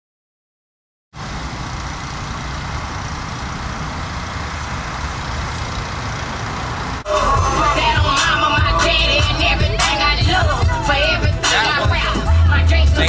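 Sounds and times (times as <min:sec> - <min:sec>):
engine rumble and hiss: 0:01.2 - 0:13.0
music with singing: 0:07.1 - 0:13.0.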